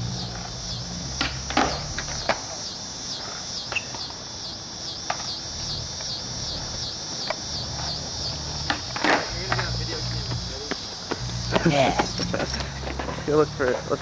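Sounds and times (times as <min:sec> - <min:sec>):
pulsing high buzz: 0:00.0 - 0:14.0
skateboard clacks on asphalt: 0:01.1 - 0:02.6, 0:05.0 - 0:05.4, 0:07.1 - 0:08.0, 0:08.6 - 0:13.2.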